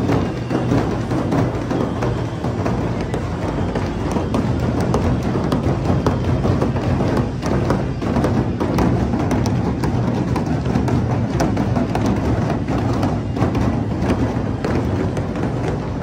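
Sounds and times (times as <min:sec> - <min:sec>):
large drums beaten densely: 0:00.0 - 0:16.0.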